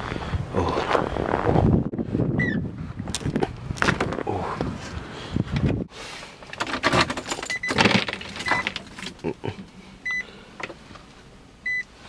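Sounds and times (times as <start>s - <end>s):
car warning beep: 2.4s - 2.6s, 7.5s - 8.8s, 10.0s - 10.3s, 11.6s - 11.9s
keys jingling: 6.6s - 9.3s.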